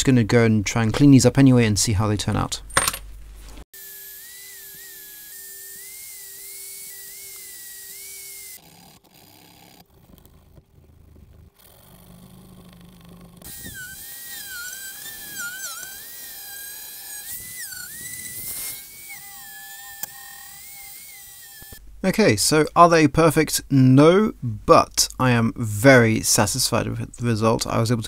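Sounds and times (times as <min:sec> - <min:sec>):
rotary tool whining on metal: 0:03.8 - 0:10.6, 0:11.5 - 0:21.8.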